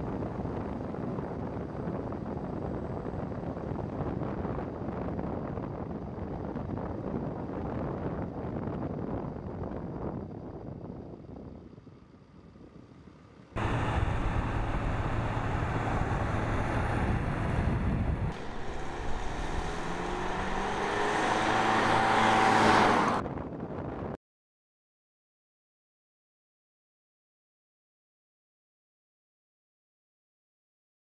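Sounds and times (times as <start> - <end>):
steady low hum: 13.6 - 22.4
car driving by: 13.6 - 23.2.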